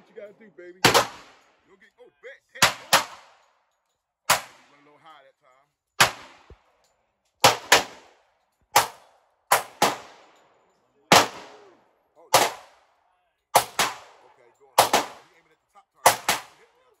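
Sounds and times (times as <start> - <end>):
pistol shots with echo: 0.8 - 1.6, 2.6 - 3.7, 4.3 - 4.9, 6.0 - 6.7, 7.4 - 10.5, 11.1 - 15.4, 16.0 - 17.0.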